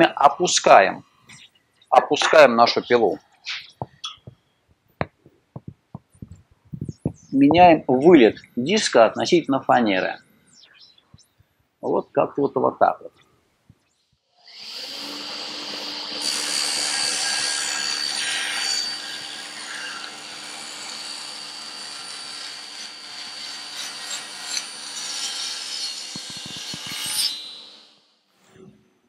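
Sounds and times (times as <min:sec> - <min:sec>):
table saw cutting plywood: 0:14.4 - 0:28.0.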